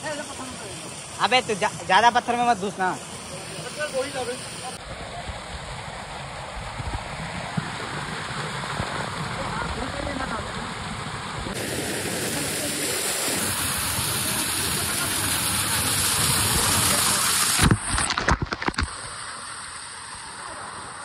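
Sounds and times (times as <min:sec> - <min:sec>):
waterfall rushing over rocks: 0:00.0 - 0:05.0, 0:07.7 - 0:21.0
water crackling on microphone: 0:13.4 - 0:21.0.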